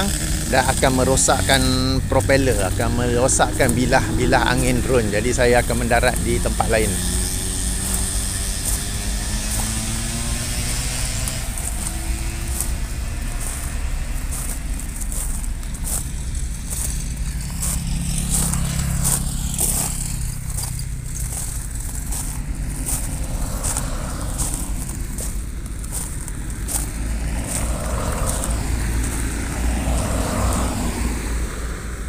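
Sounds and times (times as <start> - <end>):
car driving past: 0.0 - 32.0
drone propellers humming: 0.0 - 32.0
scattered crackles: 11.2 - 30.8.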